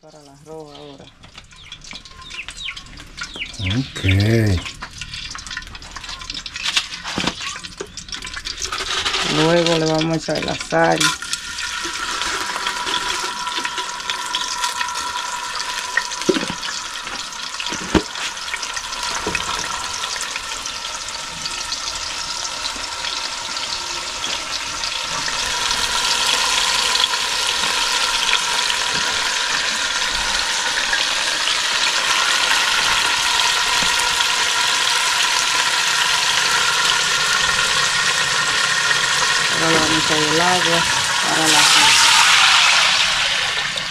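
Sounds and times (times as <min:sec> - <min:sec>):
oil sizzling in a pot: 0:00.0 - 0:43.9.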